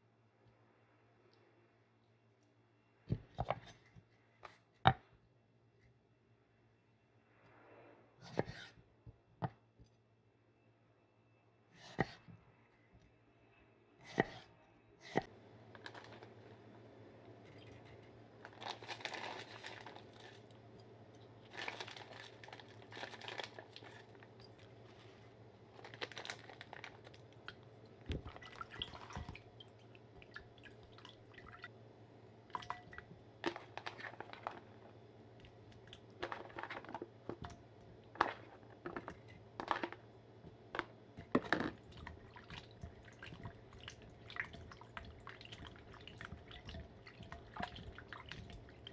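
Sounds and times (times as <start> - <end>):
small splashes and clinks: 32.5 - 34.4, 41.2 - 48.9.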